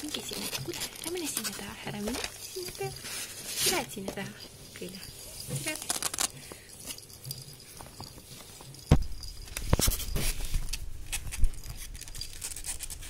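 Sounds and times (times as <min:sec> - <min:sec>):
ferrets rustling on blanket: 0:00.0 - 0:11.7
thump: 0:08.9 - 0:09.2.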